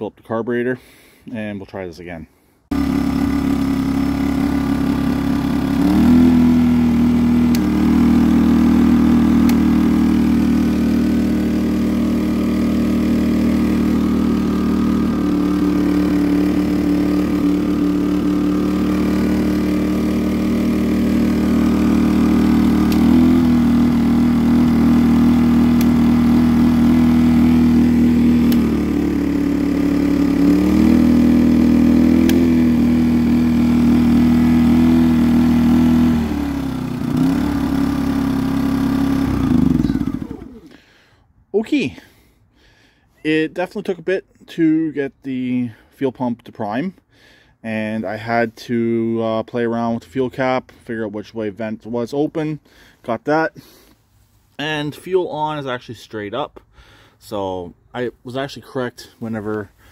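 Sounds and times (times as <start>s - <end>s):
generator running: 2.7s - 43.0s.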